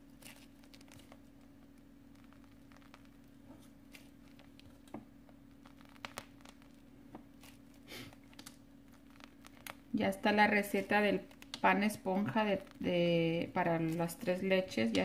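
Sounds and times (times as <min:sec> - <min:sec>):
plastic piping bag crinkling: 0:00.0 - 0:15.0
steady low hum: 0:00.0 - 0:15.0.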